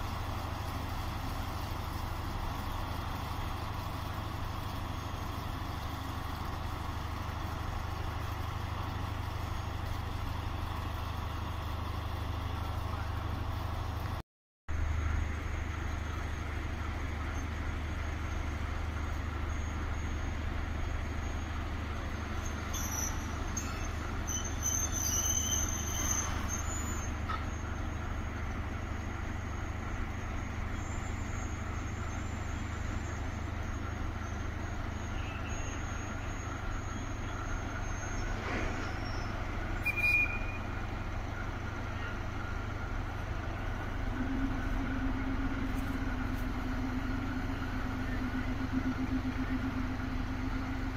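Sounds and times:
diesel locomotive rumbling: 0.0 - 50.9
faint high squeals: 22.4 - 27.7, 30.8 - 40.8.

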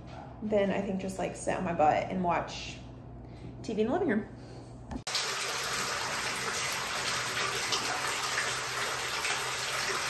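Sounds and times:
water pouring from tap into tub: 5.1 - 10.0.

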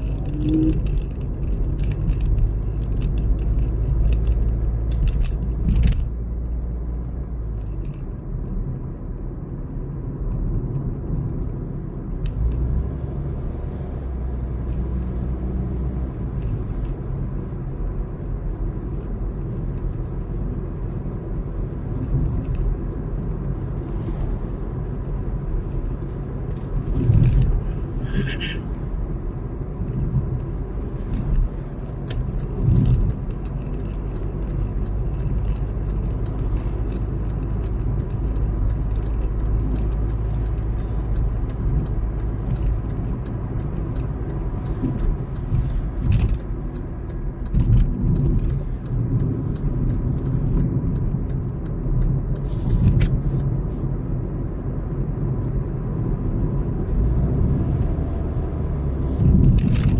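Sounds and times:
vehicle engine and road rumble: 0.0 - 59.9
clicks and rattles: 29.9 - 52.1, 59.2 - 59.9.

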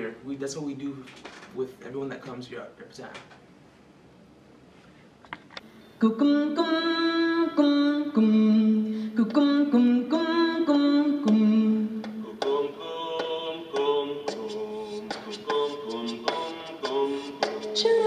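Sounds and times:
a cappella choir singing: 6.0 - 18.0.

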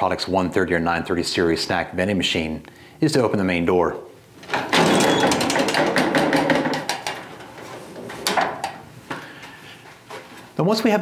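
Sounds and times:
door clack: 4.5 - 7.6
metallic clicking and rattling: 4.5 - 8.8.

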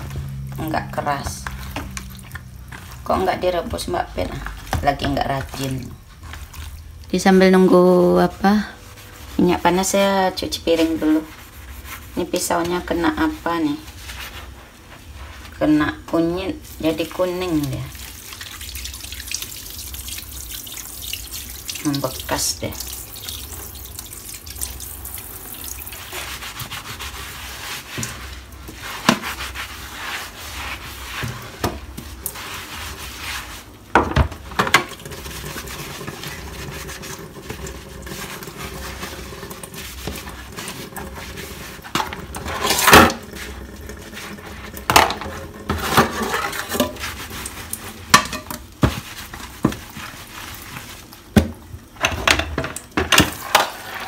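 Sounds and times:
dishes being scrubbed: 0.0 - 51.4, 52.0 - 54.0.

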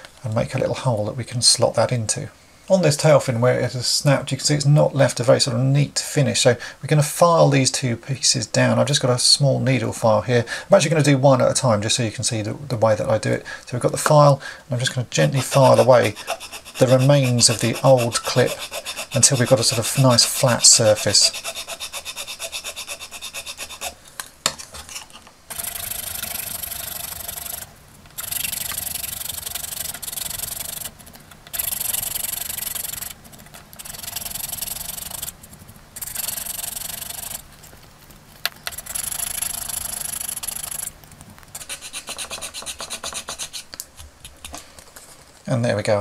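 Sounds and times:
needle file rasping on plastic: 15.2 - 24.0, 24.6 - 40.9, 41.5 - 44.4.

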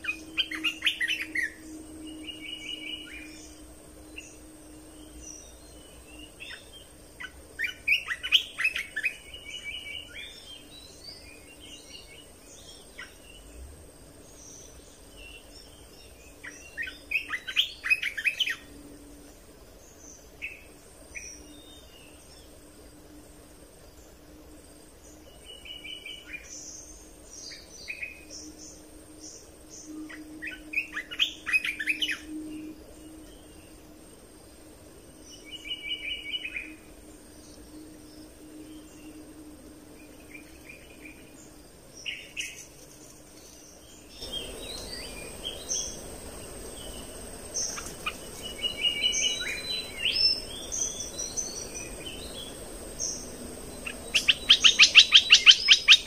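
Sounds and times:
bird chattering song: 0.0 - 13.5, 14.4 - 18.7, 29.8 - 32.6, 46.8 - 56.0
faint low hum: 0.0 - 56.0
thin high whine: 14.2 - 55.0.

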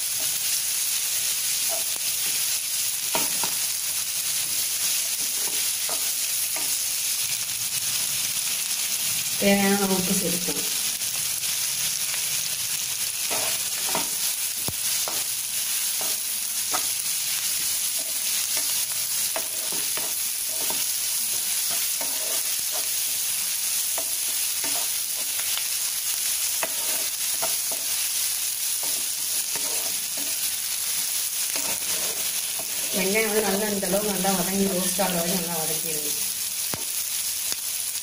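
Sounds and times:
vegetables sizzling in oil: 0.0 - 38.0
spatula scraping and tapping pan: 3.1 - 3.6, 5.1 - 6.8, 13.2 - 15.3, 16.0 - 17.0, 17.9 - 23.0, 23.9 - 25.5, 26.6 - 28.0, 28.8 - 30.5, 31.5 - 33.0.

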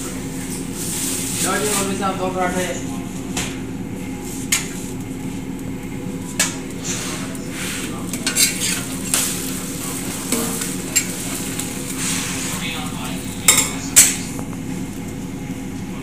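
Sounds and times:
frying sizzle: 0.0 - 16.0
steel ladle scraping iron pan: 8.2 - 9.2.

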